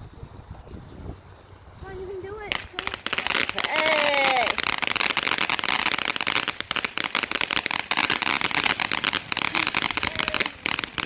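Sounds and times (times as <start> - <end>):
firework crackling pops: 2.4 - 11.0.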